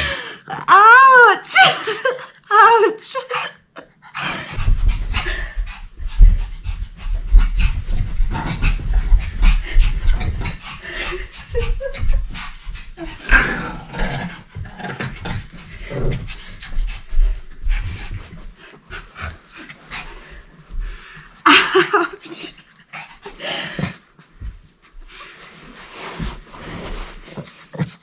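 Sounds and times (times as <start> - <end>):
small dog panting: 3.9 - 13.4, 14.2 - 21.1.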